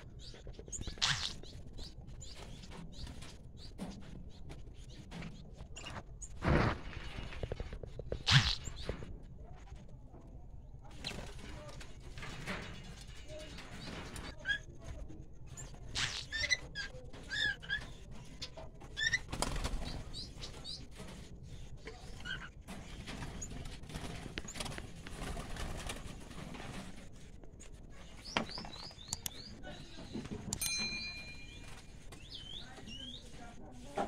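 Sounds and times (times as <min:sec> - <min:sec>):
parrots chirping: 0:00.3 - 0:02.4, 0:15.9 - 0:16.7
wing flapping in cage: 0:15.5 - 0:29.1.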